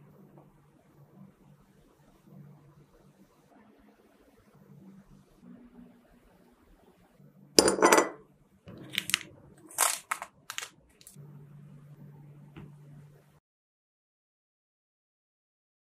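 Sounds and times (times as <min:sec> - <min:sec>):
faint low hum: 0:00.0 - 0:13.4
plastic wrappers crinkling: 0:08.7 - 0:11.2.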